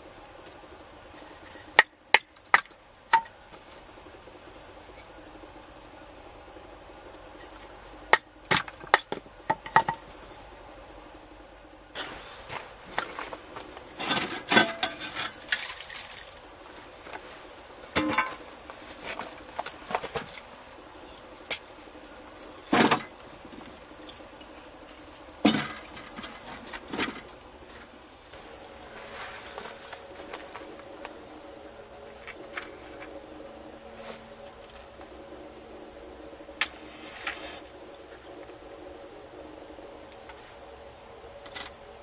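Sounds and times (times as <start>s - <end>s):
soft rustling: 27.7s - 30.7s.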